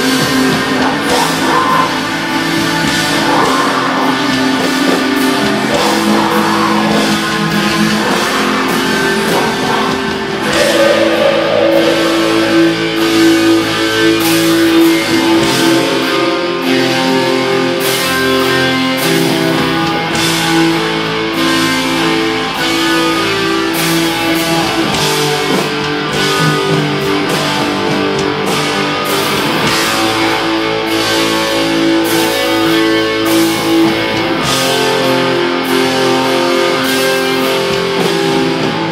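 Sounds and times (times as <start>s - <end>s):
distorted electric guitars: 0.0s - 38.9s
drums and cymbals: 0.0s - 38.9s.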